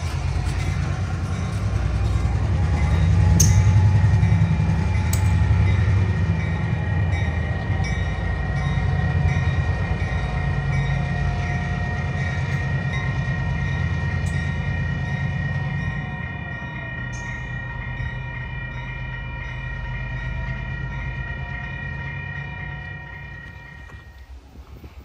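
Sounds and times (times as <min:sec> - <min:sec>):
train wheels clicking: 0:00.0 - 0:16.1
diesel locomotive engine drone: 0:00.0 - 0:25.0.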